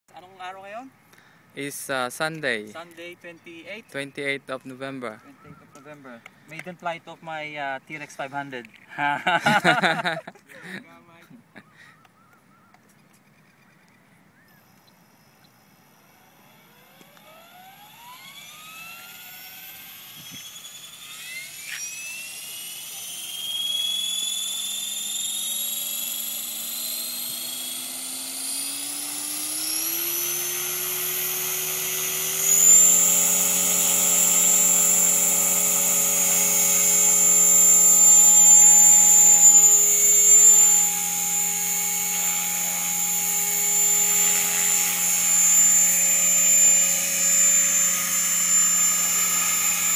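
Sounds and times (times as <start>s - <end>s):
rc helicopter motor whine: 14.4s - 49.9s.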